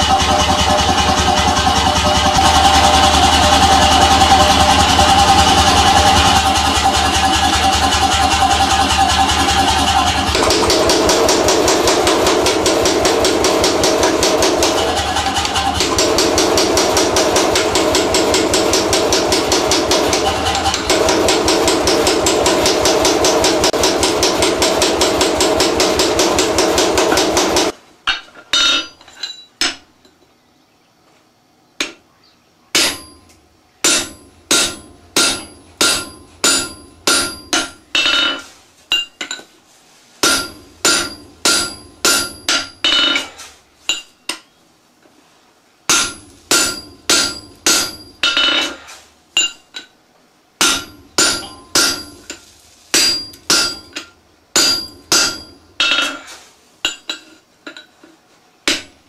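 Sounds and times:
power hammer pounding steel: 0:00.0 - 0:27.8, 0:32.8 - 0:39.2, 0:40.2 - 0:43.3, 0:45.9 - 0:49.7, 0:50.6 - 0:56.3, 0:58.7 - 0:59.0
hammer ringing on anvil: 0:32.8 - 0:39.4, 0:40.2 - 0:43.3, 0:45.9 - 0:48.8, 0:49.4 - 0:49.9, 0:50.6 - 0:52.4, 0:53.0 - 0:56.3.

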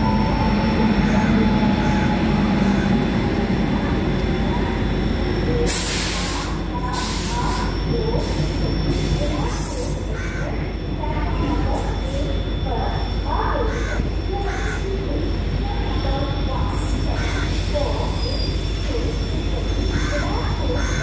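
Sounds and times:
locomotive low hum: 0:00.0 - 0:21.0
steel wheels rumbling on rail: 0:00.0 - 0:21.0.

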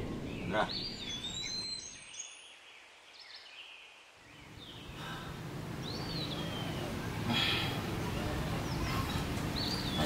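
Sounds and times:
birds chirping: 0:00.0 - 0:10.0
outdoor background noise: 0:00.0 - 0:10.0.

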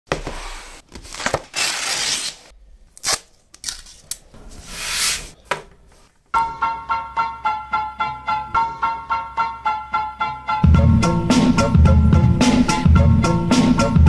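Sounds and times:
paper rustling: 0:00.1 - 0:02.5.

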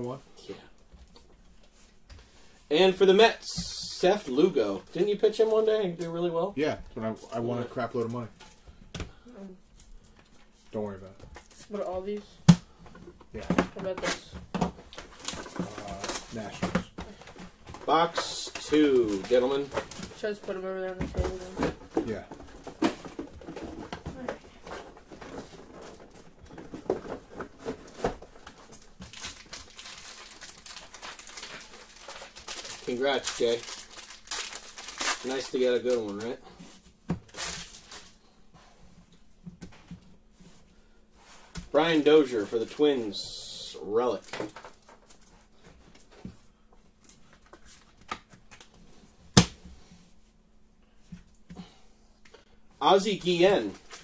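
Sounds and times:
foil wrapper crinkling: 0:28.2 - 0:36.4.

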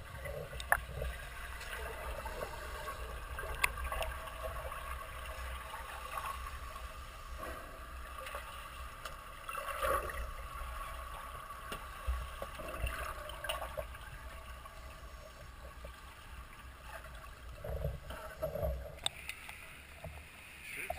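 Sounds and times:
low underwater rumble: 0:00.0 - 0:19.1
water swishing: 0:00.0 - 0:20.9
faint clicks: 0:09.0 - 0:09.2, 0:18.1 - 0:20.2.

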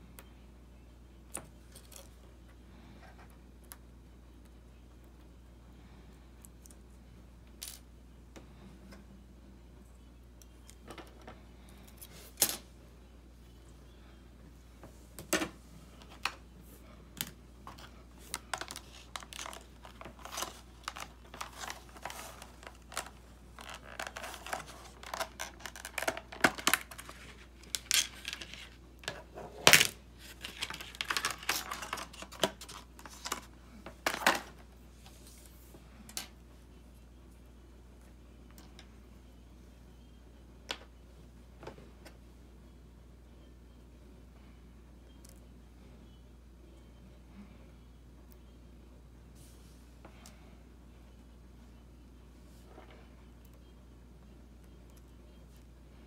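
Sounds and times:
plastic wrapping crinkling: 0:17.8 - 0:28.8.

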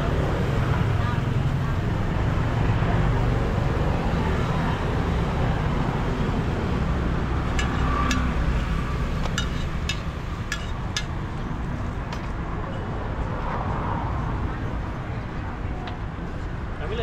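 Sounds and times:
street traffic rumble: 0:00.0 - 0:17.0
metal spatula striking griddle pan: 0:07.6 - 0:08.3, 0:09.3 - 0:11.1.

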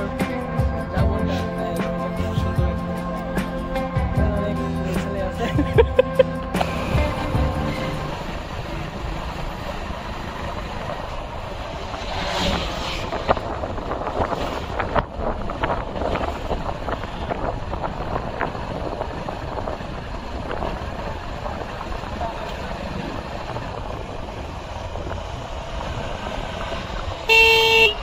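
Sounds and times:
wind buffeting microphone: 0:06.6 - 0:27.3.

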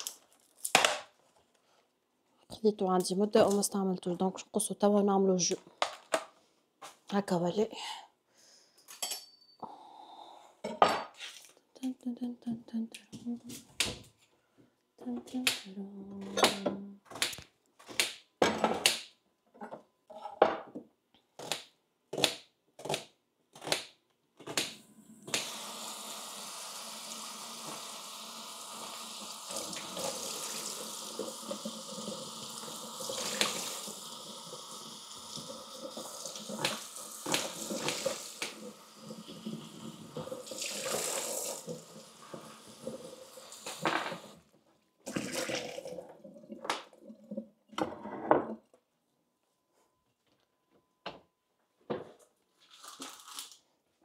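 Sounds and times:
running tap water: 0:25.4 - 0:44.4.

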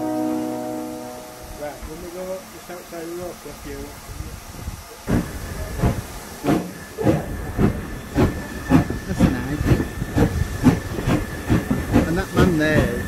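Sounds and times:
steam locomotive chuffing: 0:00.0 - 0:13.0.

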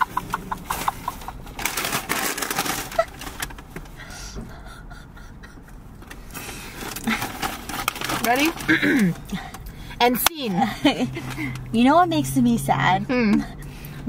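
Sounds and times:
eating and food-handling noises: 0:00.0 - 0:04.2, 0:06.0 - 0:09.7.

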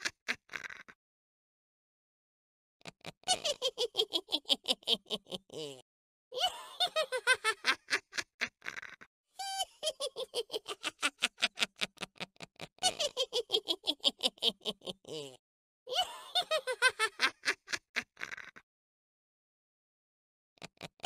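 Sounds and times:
high-pitched cackling laugh: 0:00.0 - 0:01.0, 0:02.9 - 0:05.8, 0:06.4 - 0:18.6.

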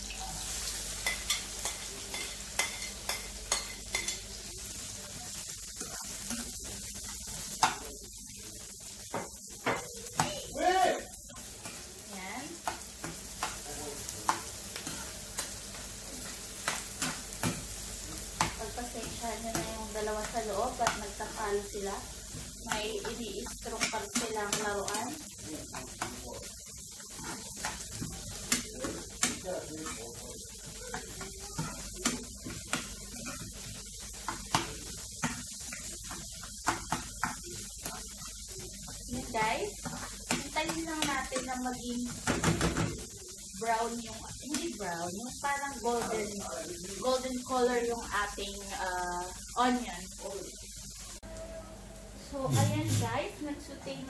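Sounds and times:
onions sizzling in a pan: 0:00.0 - 0:54.0
spatula tapping pan: 0:01.0 - 0:04.3, 0:07.4 - 0:07.9, 0:09.0 - 0:10.4, 0:11.2 - 0:43.1
utensil scraping a pan: 0:52.5 - 0:53.2.

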